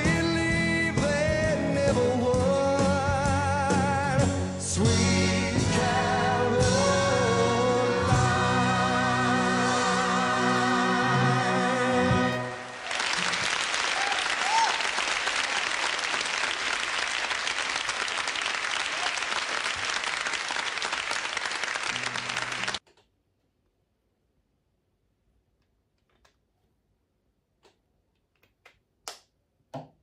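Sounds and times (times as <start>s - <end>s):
pop song held note: 0.0s - 12.8s
audience applauding and cheering: 12.0s - 22.8s.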